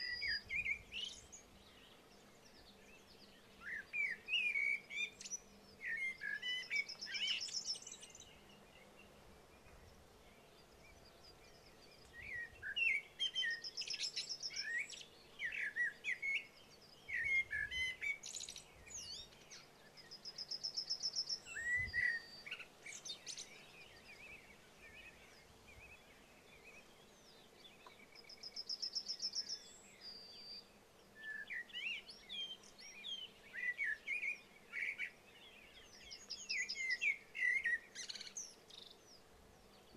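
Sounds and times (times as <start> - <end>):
songbirds chirping and trilling: 0.0 - 39.9.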